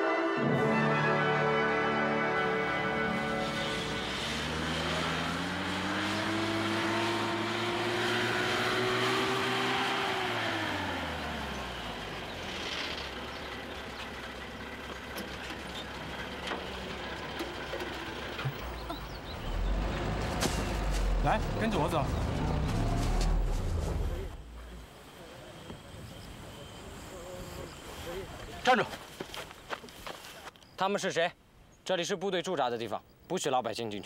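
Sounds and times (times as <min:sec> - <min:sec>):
truck engine accelerating: 0:00.6 - 0:27.8.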